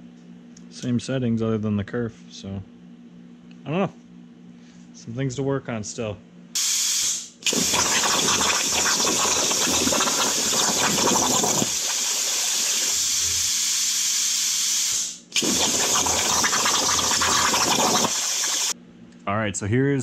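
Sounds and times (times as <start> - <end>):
plasma torch hissing: 6.6 - 18.8.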